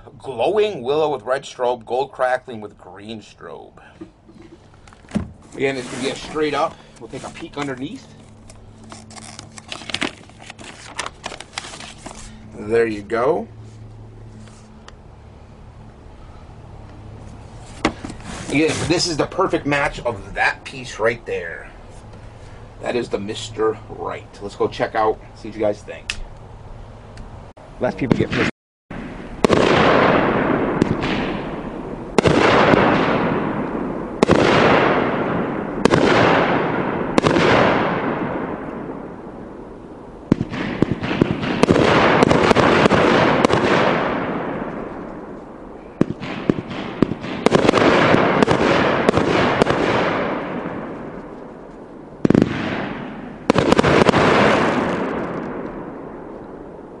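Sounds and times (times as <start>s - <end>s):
firework shots: 27.9s - 57.0s.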